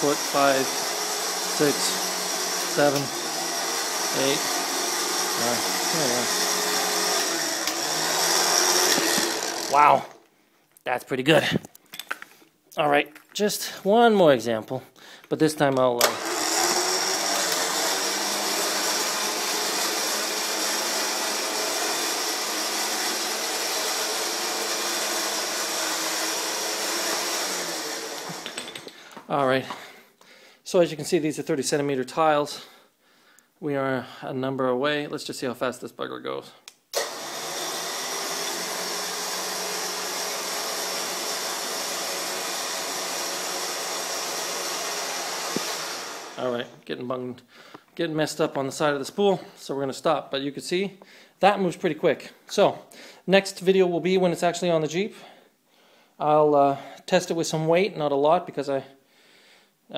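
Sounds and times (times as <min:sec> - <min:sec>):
electric winch whirring: 0:00.0 - 0:10.1, 0:16.0 - 0:28.6, 0:37.0 - 0:46.6.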